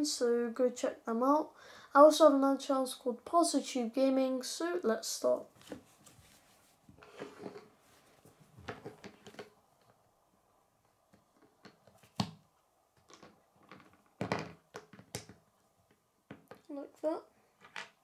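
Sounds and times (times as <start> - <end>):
plastic pieces clicking and knocking: 13.0 - 15.4.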